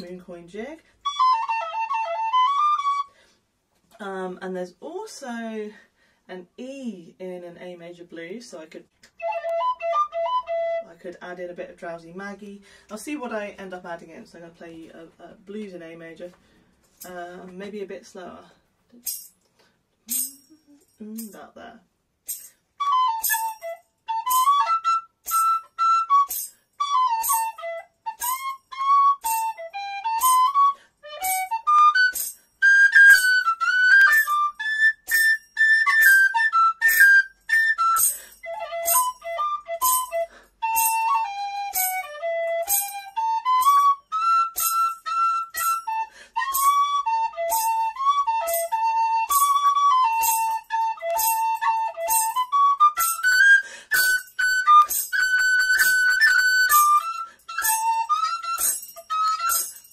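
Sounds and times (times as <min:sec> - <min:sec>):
tin whistle playing slow blues: 0:01.0 - 0:03.2, 0:09.2 - 0:10.8, 0:22.8 - 0:59.9
jingle keeping a beat: 0:18.9 - 0:21.5, 0:22.2 - 0:59.9.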